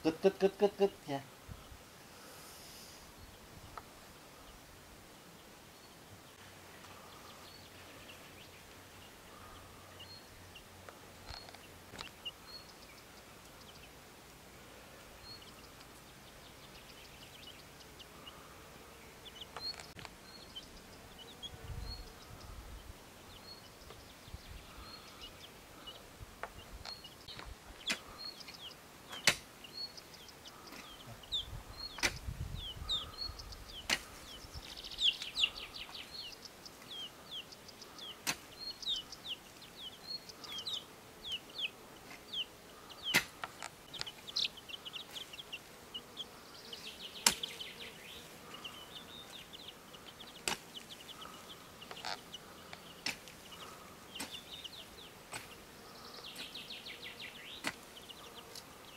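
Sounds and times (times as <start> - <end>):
small birds chirping: 0.0 - 58.9
hoe chopping stony soil: 29.1 - 29.5, 33.9 - 34.1, 38.2 - 38.5, 43.1 - 43.6, 47.2 - 47.6, 50.4 - 50.7, 53.0 - 53.3, 55.3 - 55.6.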